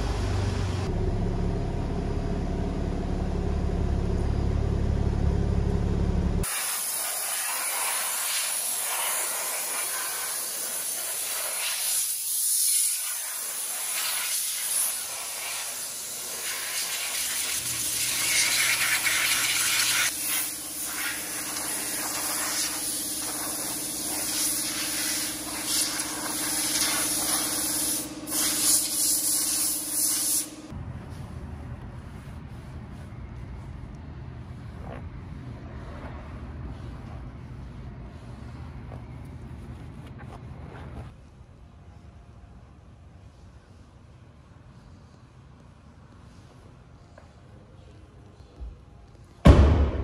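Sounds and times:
steady low hum: 0.0 - 6.5
compressed air blow gun hissing: 6.4 - 30.6.

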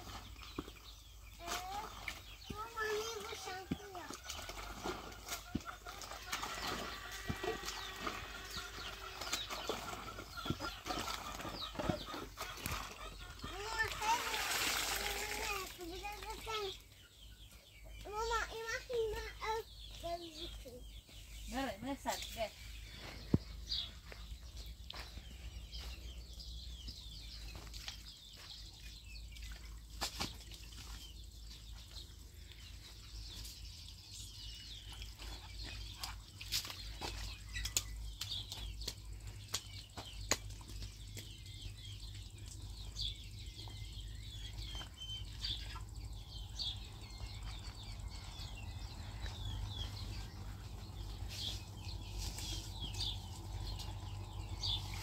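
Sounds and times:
small birds chirping: 0.0 - 55.0
water trickling: 13.5 - 16.5.

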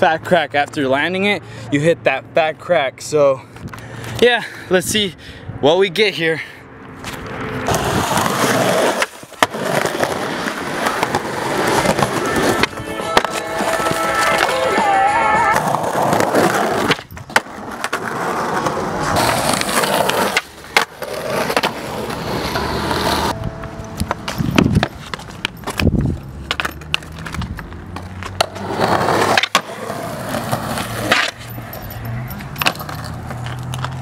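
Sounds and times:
skateboard wheels rolling on concrete: 6.2 - 34.0
skateboard clacks: 7.7 - 23.3, 24.0 - 31.4.

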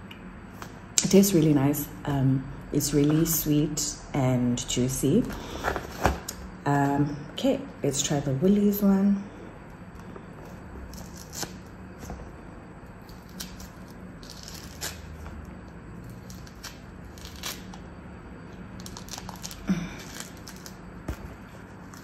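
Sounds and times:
faint steady hum: 0.0 - 22.0
peel tearing and crackling: 10.4 - 11.7, 13.0 - 17.8, 18.8 - 20.8.

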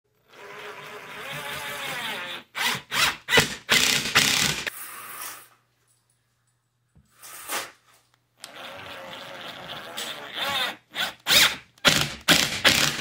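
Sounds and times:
power drill driving screws: 0.3 - 5.3, 9.8 - 13.0.

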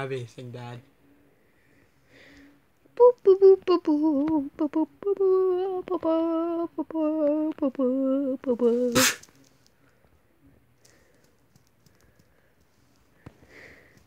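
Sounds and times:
person humming: 3.0 - 9.2.

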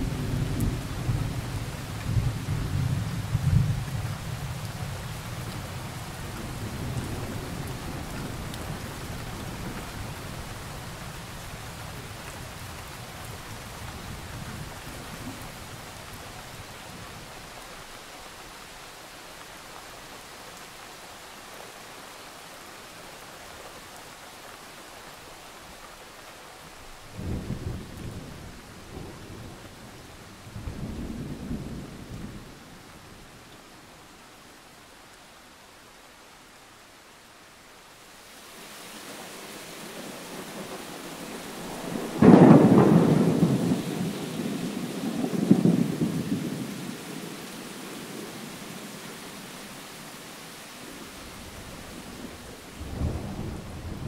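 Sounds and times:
steady rain: 0.0 - 54.0
thunder rumbling: 40.3 - 46.9, 51.2 - 54.0.

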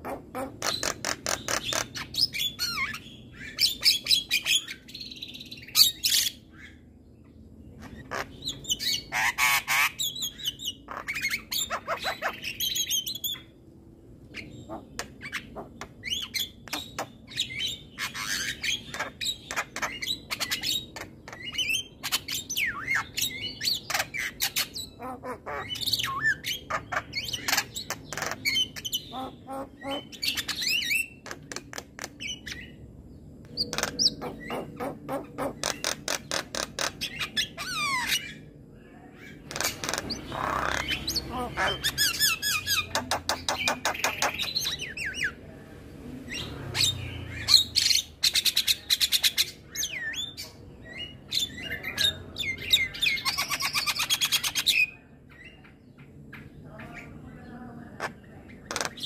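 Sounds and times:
myna chattering and squawking: 0.0 - 3.0, 7.8 - 13.4, 23.7 - 32.6, 33.5 - 38.4, 39.4 - 45.4, 58.0 - 59.0.

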